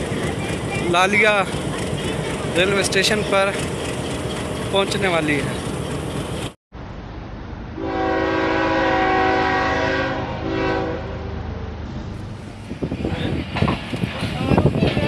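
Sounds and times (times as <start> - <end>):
train rumbling: 0.0 - 15.0
train horn blasts: 7.8 - 11.8.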